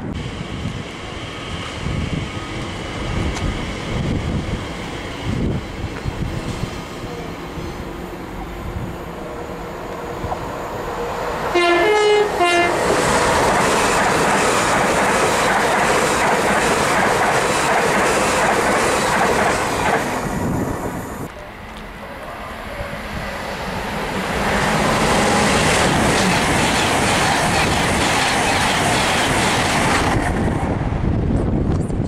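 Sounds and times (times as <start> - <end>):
train passing: 0.0 - 32.0
wheels clacking on rail: 11.6 - 20.3, 23.9 - 30.6.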